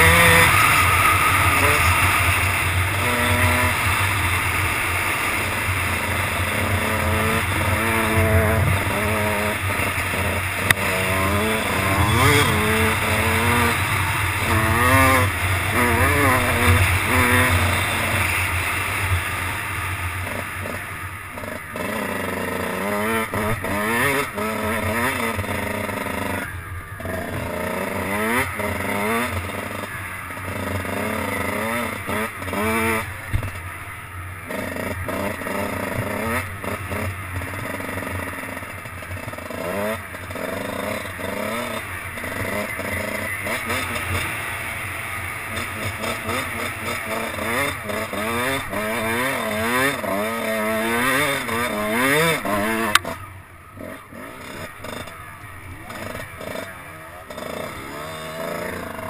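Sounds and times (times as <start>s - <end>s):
motocross bike engine revving: 0.0s - 59.0s
low wind rumble: 3.6s - 21.4s.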